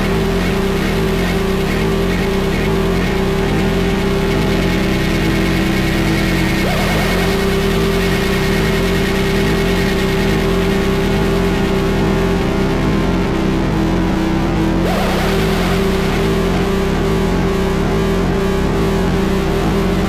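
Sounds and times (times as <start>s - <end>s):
droning tone: 0.0s - 20.0s
wall of noise: 0.0s - 20.0s
wavering flutter: 6.4s - 9.8s.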